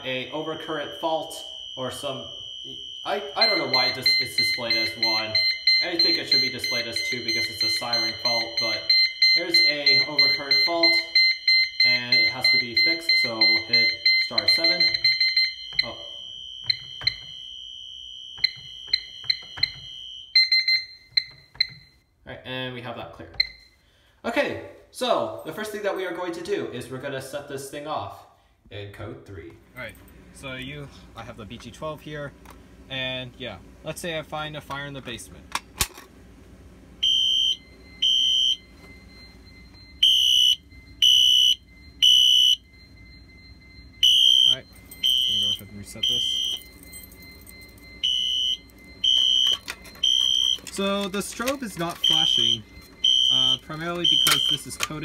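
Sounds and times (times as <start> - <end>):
faint steady high tone: 0.0 - 11.2, 37.4 - 55.0
fire alarm horn beeping: 0.0 - 22.2, 36.9 - 55.0
keypad beeps: 18.4 - 21.9, 44.0 - 55.0.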